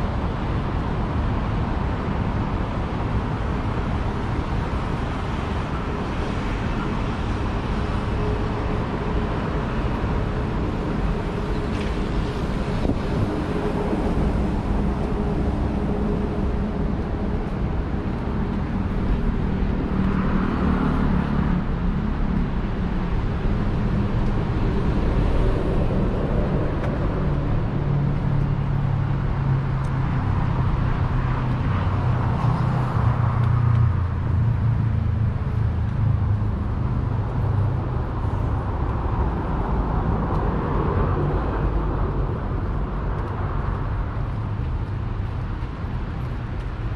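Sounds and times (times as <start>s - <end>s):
road traffic engine hum: 0.0s - 46.9s.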